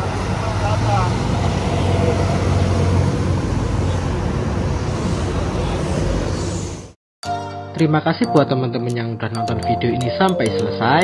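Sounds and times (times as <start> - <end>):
bus diesel engine humming: 0.0 - 7.0
street noise: 0.0 - 7.0.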